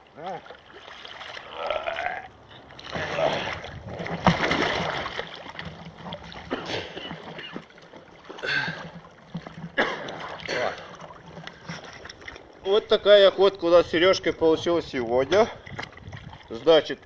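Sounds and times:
river water splashing: 0.0 - 13.2.

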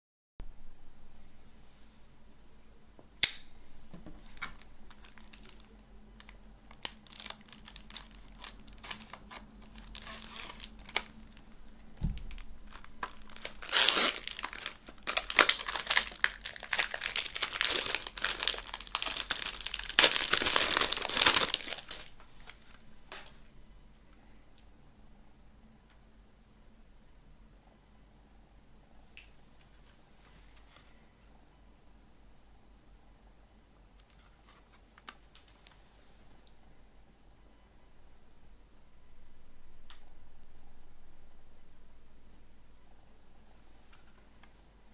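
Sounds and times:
sharp click: 3.2 - 3.5
plastic wrap tearing and crinkling: 4.2 - 22.6.

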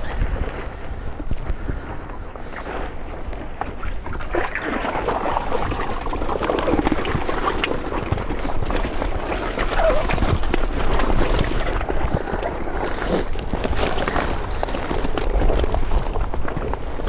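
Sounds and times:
wind rumble on microphone: 0.0 - 17.0
water sloshing and trickling: 3.4 - 16.8.

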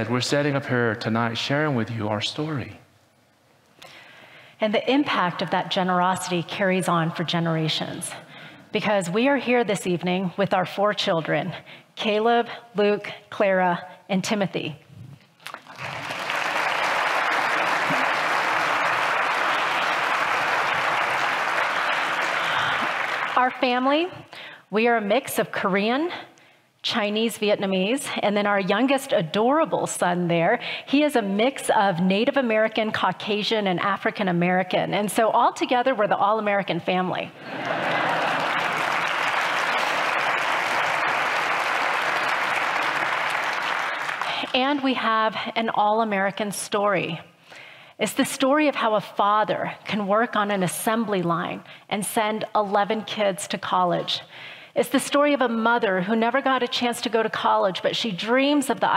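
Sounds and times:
audience applauding: 15.5 - 23.6, 37.4 - 44.8.

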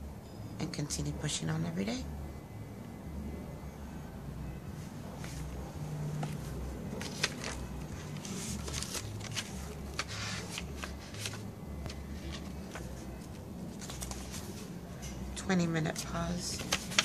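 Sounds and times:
paper rustling: 5.2 - 15.2, 15.9 - 17.0.

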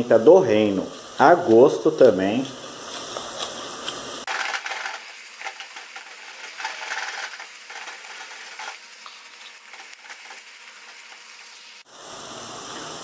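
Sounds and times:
meat sizzling in a pot: 0.6 - 13.0
spatula scraping a pot: 4.3 - 11.6.

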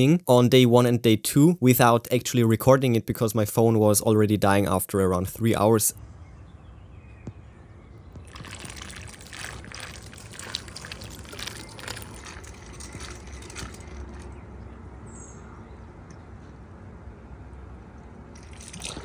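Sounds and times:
low steady hum: 0.0 - 19.0
water splashing and trickling: 8.2 - 14.4, 18.3 - 19.0.

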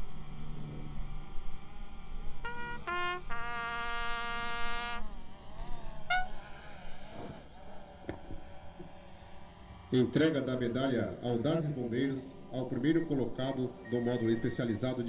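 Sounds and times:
bugle call: 2.4 - 5.0, 6.0 - 6.4.

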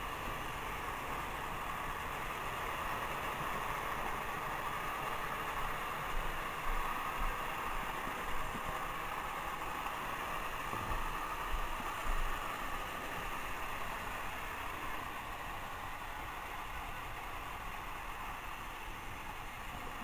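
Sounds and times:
toy train motors whirring: 0.0 - 20.0.

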